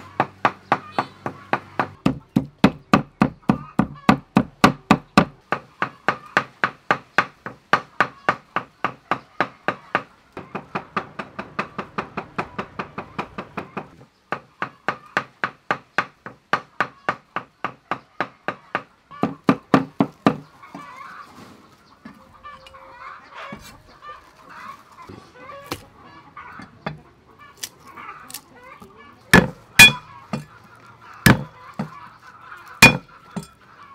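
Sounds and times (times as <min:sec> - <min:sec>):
chicken clucking: 0:20.4 - 0:33.9
cleaver chopping meat on board: 0:29.3 - 0:30.5, 0:31.2 - 0:31.9, 0:32.8 - 0:33.5.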